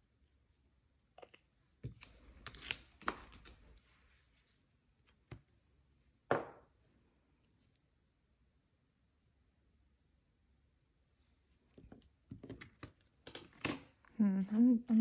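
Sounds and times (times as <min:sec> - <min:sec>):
bottle knocking on desk: 0:06.3 - 0:06.6.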